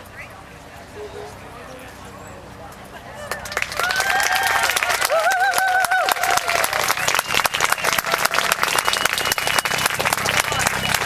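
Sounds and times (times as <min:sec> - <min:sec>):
crowd applauding: 0:03.2 - 0:11.0.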